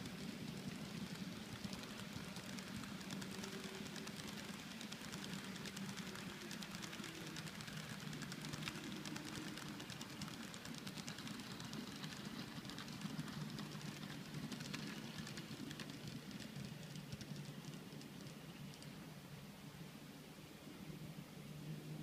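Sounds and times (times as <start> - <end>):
model train wheels clattering: 0.0 - 19.0
low steady hum: 0.0 - 22.0.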